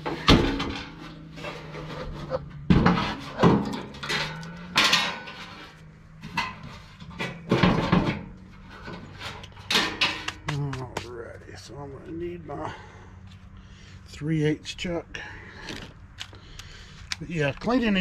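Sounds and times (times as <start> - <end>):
metal housing clanking on wood: 0.0 - 10.5.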